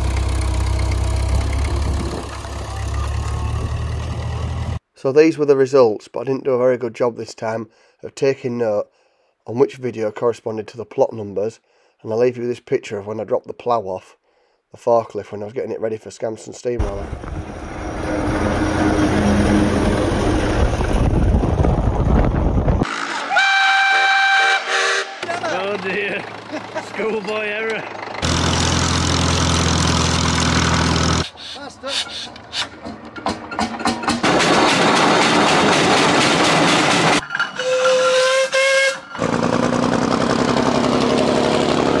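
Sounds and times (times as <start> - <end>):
tractor engine rumbling: 0.0 - 4.8, 16.8 - 23.0, 25.2 - 42.0
steam engine whistle: 22.9 - 25.2, 37.6 - 39.3.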